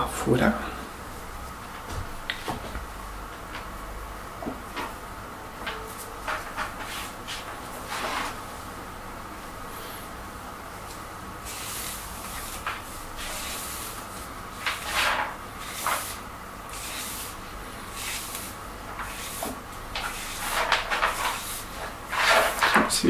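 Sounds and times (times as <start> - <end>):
hair styling hissing strokes: 11.4 - 22.5.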